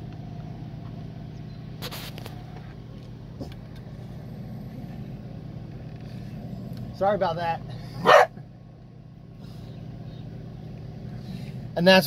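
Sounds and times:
low engine-like hum: 0:00.0 - 0:12.0.

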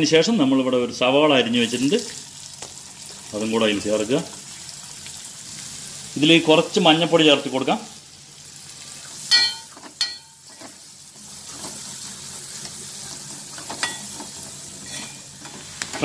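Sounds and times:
onions sizzling in oil: 0:00.0 - 0:16.0
spoon scraping and clinking pan: 0:09.3 - 0:10.8, 0:13.5 - 0:15.6.

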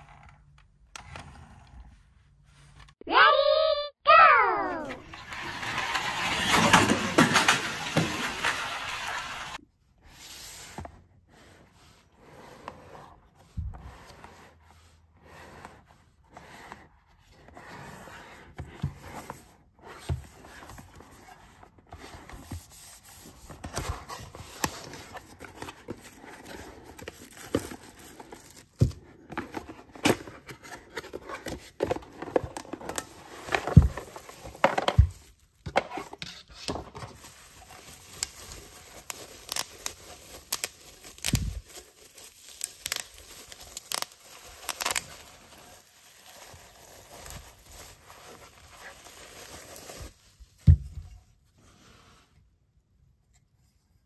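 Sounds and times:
paperboard box scraping and tearing: 0:05.0 - 0:09.5, 0:10.1 - 0:35.1
bubble wrap rustling: 0:05.0 - 0:09.6, 0:37.0 - 0:50.6.

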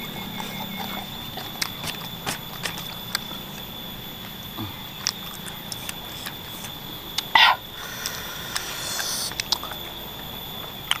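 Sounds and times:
person chewing: 0:00.4 - 0:03.7, 0:04.6 - 0:07.3, 0:08.0 - 0:10.0.

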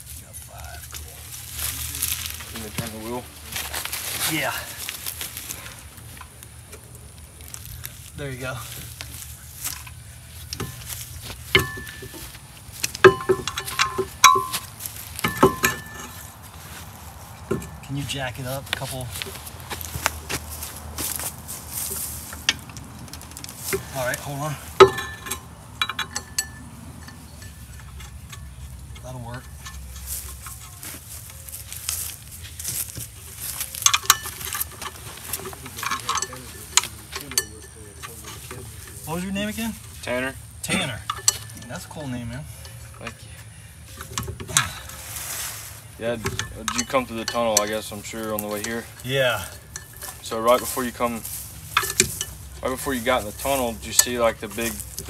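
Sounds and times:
metal tools clinking: 0:00.4 - 0:55.0
sharp ringing metal strikes: 0:13.0 - 0:16.2.

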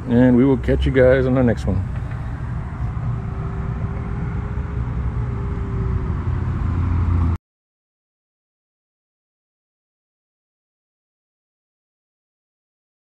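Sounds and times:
low rumble: 0:01.7 - 0:07.4.

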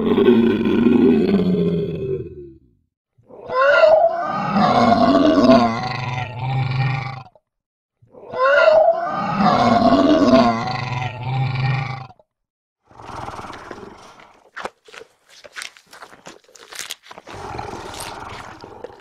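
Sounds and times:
dinosaur roar: 0:00.0 - 0:02.6, 0:03.3 - 0:07.4, 0:08.1 - 0:12.2, 0:17.3 - 0:19.0.

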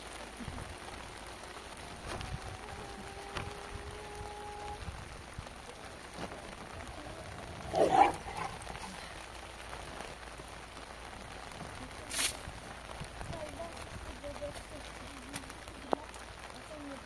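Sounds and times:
rain on a plastic roof: 0:00.0 - 0:17.0
dog barking: 0:07.7 - 0:08.6
broom swishing on wet plastic: 0:12.0 - 0:12.4.

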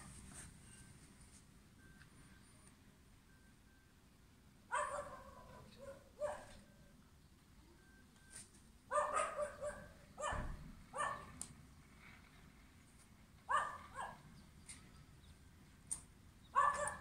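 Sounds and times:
dogs barking: 0:04.7 - 0:06.6, 0:08.9 - 0:11.4, 0:13.5 - 0:14.3, 0:16.5 - 0:17.0.

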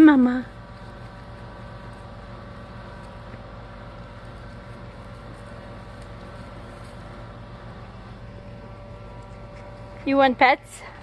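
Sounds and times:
steady mechanical hum: 0:00.0 - 0:11.0.

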